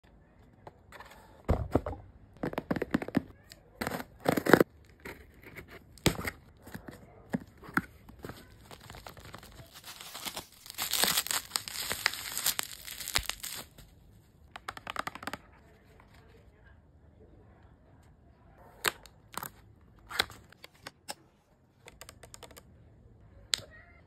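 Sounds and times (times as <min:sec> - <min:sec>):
scissors cutting bubble wrap: 0:03.8 - 0:04.7, 0:08.4 - 0:13.7
bubble wrap crinkling: 0:07.8 - 0:13.9.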